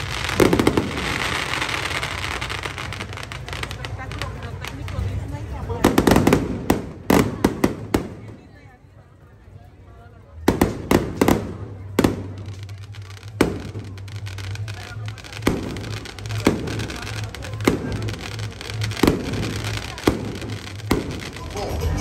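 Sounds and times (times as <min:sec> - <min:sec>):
firework bangs with echo: 0:00.0 - 0:08.6, 0:10.4 - 0:22.0
music with low bass: 0:13.6 - 0:22.0.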